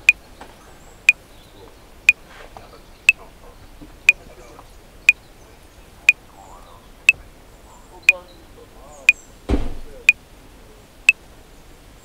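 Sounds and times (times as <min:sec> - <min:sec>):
metronome clicking: 0:00.0 - 0:00.2.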